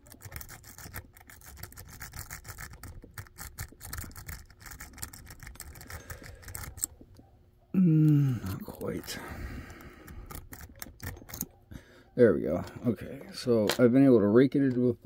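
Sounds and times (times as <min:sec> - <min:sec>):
lock pick rattling pins: 0:00.0 - 0:07.1, 0:08.4 - 0:11.6.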